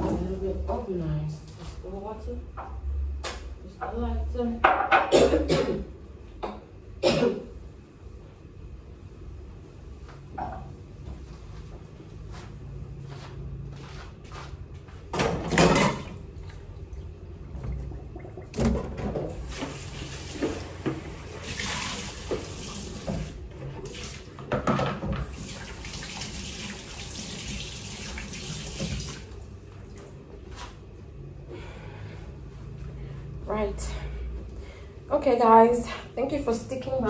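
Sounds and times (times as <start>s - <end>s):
tap water running into sink: 17.5s - 29.4s.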